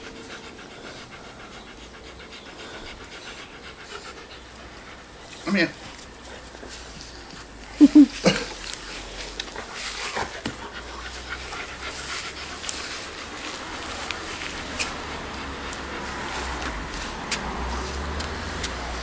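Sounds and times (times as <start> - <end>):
dog panting: 0.0 - 19.0
dog vocal sounds: 7.8 - 16.9.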